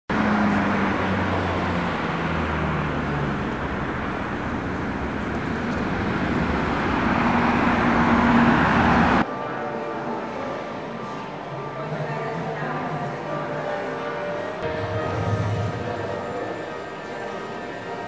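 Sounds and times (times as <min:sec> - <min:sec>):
vehicles passing: 0:00.1 - 0:11.4, 0:12.8 - 0:18.0
engine hum dropping in pitch: 0:14.6 - 0:18.0.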